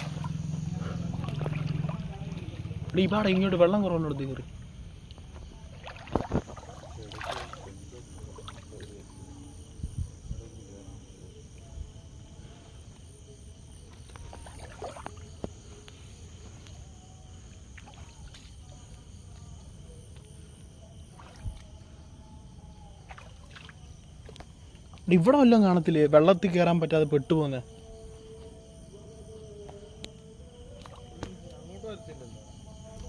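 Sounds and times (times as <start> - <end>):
wading splashes in water: 0.0 - 9.3, 13.8 - 15.8, 17.3 - 19.3, 21.0 - 22.0, 22.9 - 24.9, 30.6 - 31.6.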